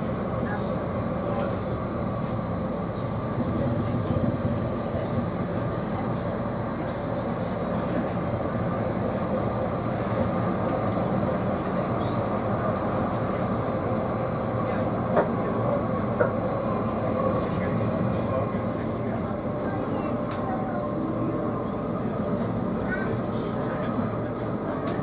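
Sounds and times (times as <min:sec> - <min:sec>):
tram wheels rumbling on rail: 0:00.0 - 0:25.0
faint high whines: 0:16.5 - 0:19.6.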